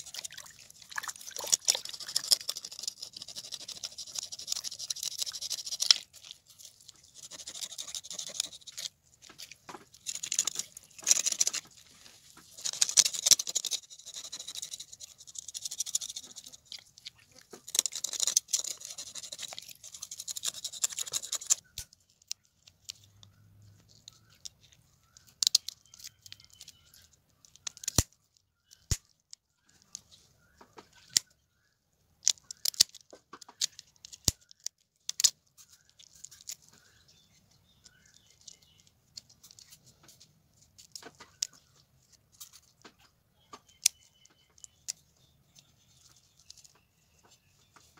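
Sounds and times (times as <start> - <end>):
knife scraping fish scales: 0.0 - 11.6, 12.5 - 16.9, 17.5 - 21.6
scissors snipping: 27.7 - 28.1.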